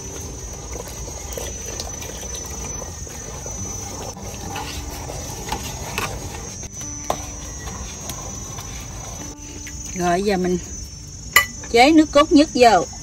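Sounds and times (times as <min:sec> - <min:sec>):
liquid swishing in a pot: 0:00.0 - 0:09.6.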